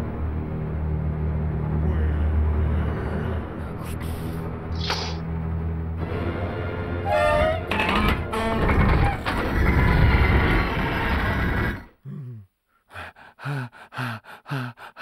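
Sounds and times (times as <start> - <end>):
cartoon cat panting: 12.9 - 15.0.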